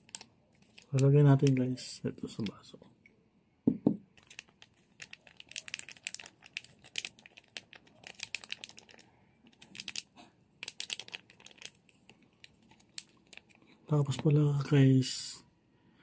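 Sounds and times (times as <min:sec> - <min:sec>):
foil sachet crinkling: 0:00.0 - 0:01.6, 0:04.2 - 0:14.2.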